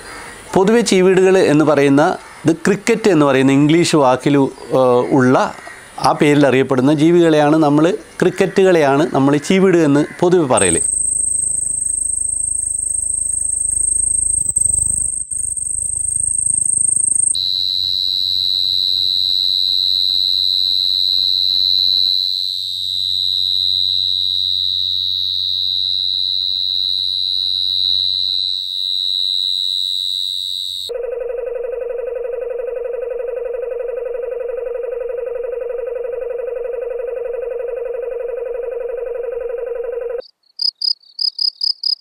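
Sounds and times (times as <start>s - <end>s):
high cricket trill: 0.0s - 42.0s
field cricket song: 7.9s - 11.2s.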